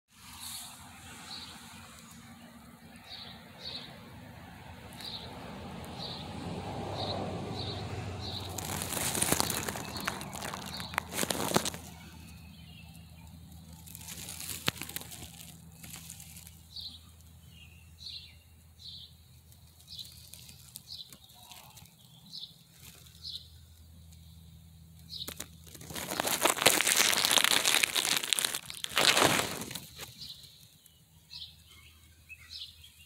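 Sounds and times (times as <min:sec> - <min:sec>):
bird chirping: 0:07.0 - 0:14.2, 0:16.4 - 0:25.6, 0:26.2 - 0:33.0
dry grass crunching: 0:08.2 - 0:12.4, 0:13.6 - 0:17.0, 0:19.6 - 0:23.4, 0:25.1 - 0:30.8.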